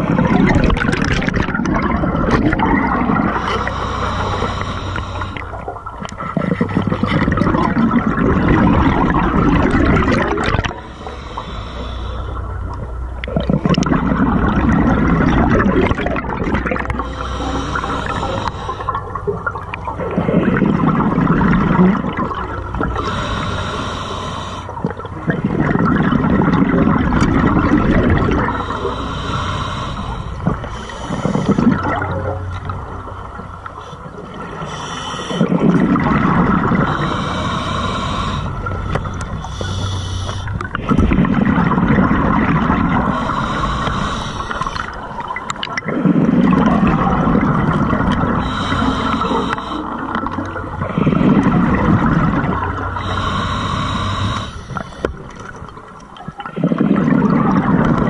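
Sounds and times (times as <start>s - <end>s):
exhaust bubbling underwater: 0.0s - 58.0s
regulator inhale hiss: 3.2s - 5.7s, 10.6s - 12.6s, 17.0s - 19.0s, 22.8s - 24.8s, 28.2s - 31.9s, 33.7s - 35.8s, 36.8s - 40.6s, 43.0s - 45.2s, 48.3s - 50.4s, 52.8s - 55.5s.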